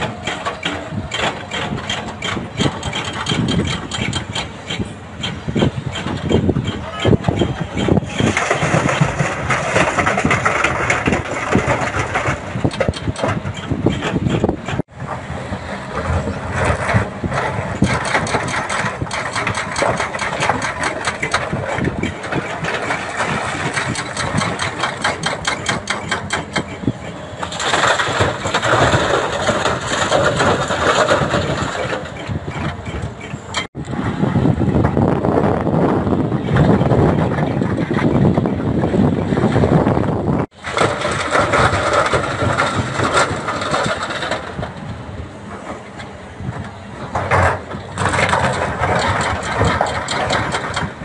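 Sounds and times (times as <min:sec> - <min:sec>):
excavator diesel engine under load: 0:00.0 - 0:51.0
rocks clattering and scraping: 0:08.1 - 0:14.9, 0:27.4 - 0:32.7, 0:40.5 - 0:44.8, 0:47.1 - 0:51.0.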